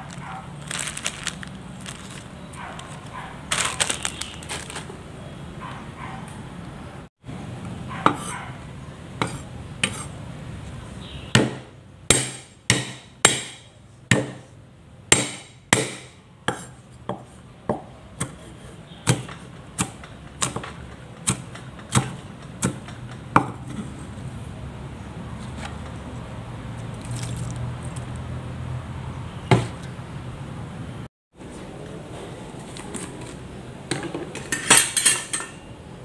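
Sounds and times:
knife chopping on wooden board: 0:11.4 - 0:14.5, 0:15.1 - 0:23.9, 0:29.5 - 0:29.9.

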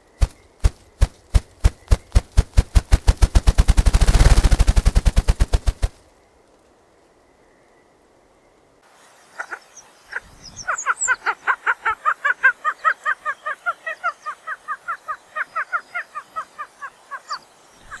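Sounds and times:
grouse clucking: 0:09.4 - 0:18.0.

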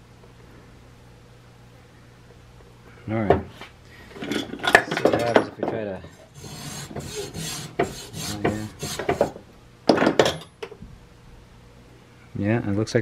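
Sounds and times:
hacksaw cutting charcoal block: 0:06.3 - 0:09.4.

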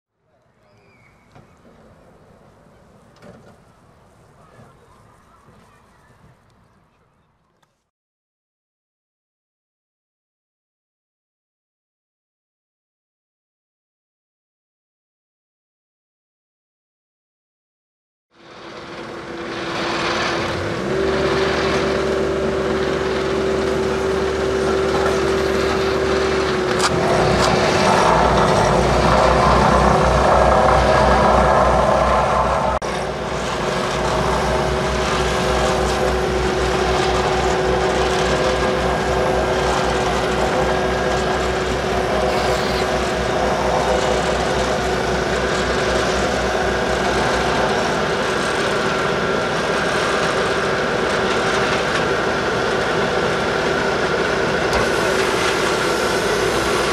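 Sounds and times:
diesel engine running: 0:18.4 - 0:56.9.

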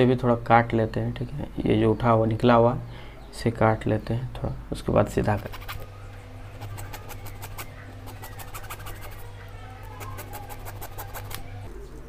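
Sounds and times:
low hum: 0:04.3 - 0:12.0
blade scraping plastic: 0:05.3 - 0:05.9, 0:06.5 - 0:09.3, 0:09.9 - 0:11.6.

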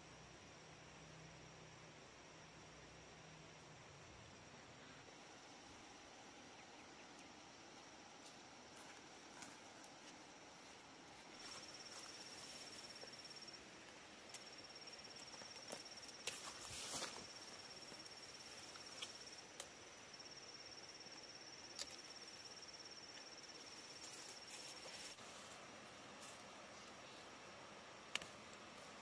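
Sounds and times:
foliage rustling: 0:08.7 - 0:20.5, 0:23.3 - 0:27.3.

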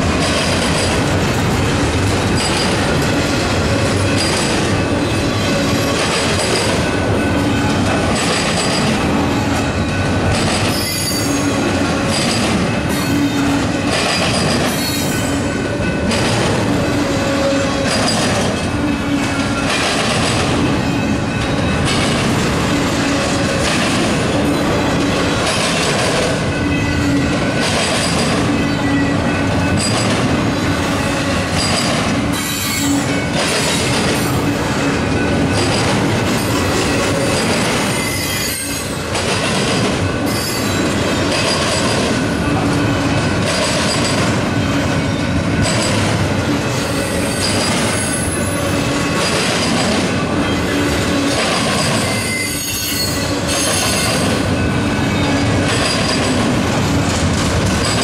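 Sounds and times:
train wheels rumbling on rail: 0:00.0 - 0:58.0
high wheel squeal: 0:10.7 - 0:11.7, 0:31.0 - 0:33.4, 0:36.4 - 0:39.0, 0:50.5 - 0:54.3.

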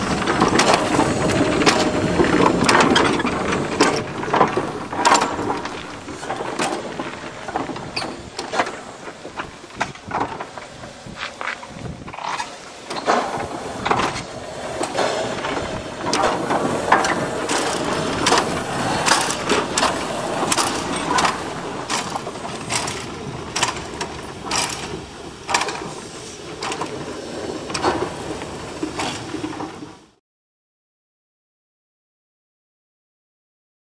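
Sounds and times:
mechanical clanking and knocking: 0:00.0 - 0:30.1
steady rushing noise: 0:00.0 - 0:30.2.

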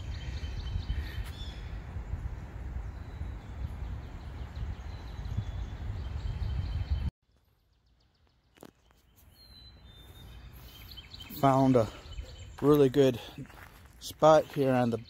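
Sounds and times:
faint high bird chirps: 0:02.8 - 0:12.9.

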